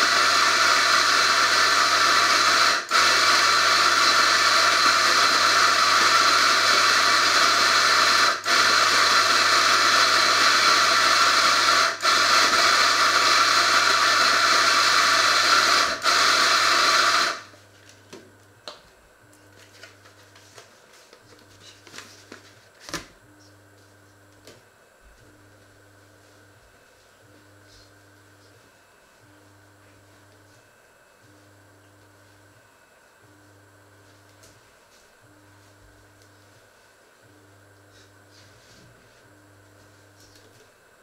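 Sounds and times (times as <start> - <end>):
electric coffee grinder running: 0.0 - 18.8.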